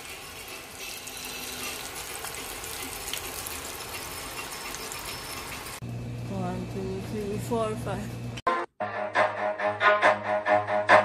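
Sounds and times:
food deep-frying in oil: 0.0 - 6.2.

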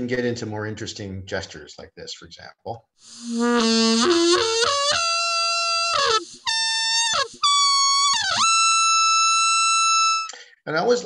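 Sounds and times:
synthesized trumpet-like notes: 3.1 - 10.4.

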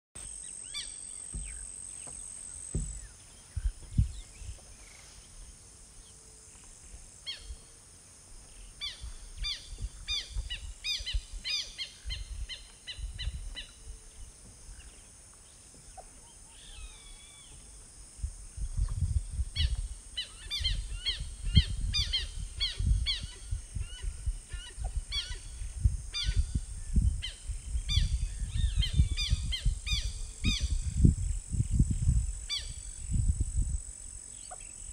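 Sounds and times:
faint insect-like hiss: 0.2 - 34.9
birds chirping: 0.4 - 5.4
wind rumble on microphone: 2.7 - 5.5, 8.3 - 15.1, 15.8 - 34.9.

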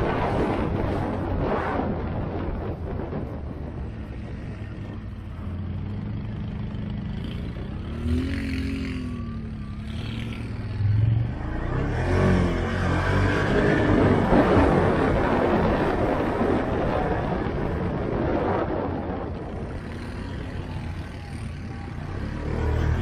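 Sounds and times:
atv engine revving: 3.9 - 17.9, 19.3 - 23.0.

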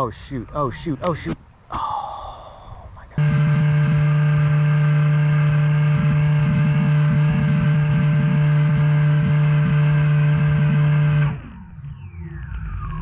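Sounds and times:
drone motors droning: 3.2 - 13.0.

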